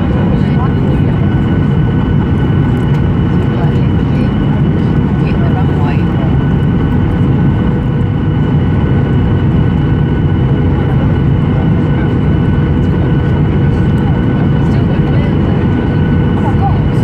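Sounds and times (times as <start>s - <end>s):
airliner cabin engine rumble: 0.0s - 17.0s.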